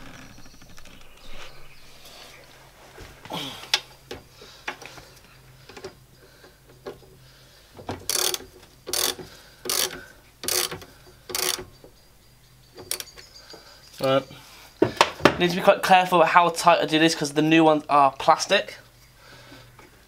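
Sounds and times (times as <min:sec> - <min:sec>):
ratchet wrench clicking: 0:08.1 - 0:11.7.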